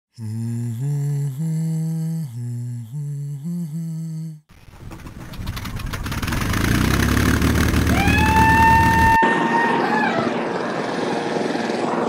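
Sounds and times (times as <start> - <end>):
person humming a melody: 0.1 - 4.5
drone propellers whirring: 6.1 - 12.0.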